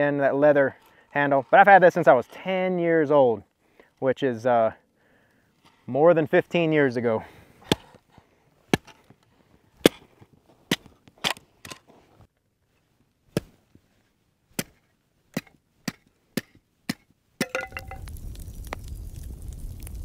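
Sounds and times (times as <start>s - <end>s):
hatchet chopping wood: 7.6s - 8.0s, 8.7s - 9.0s, 9.8s - 10.1s, 14.5s - 18.0s.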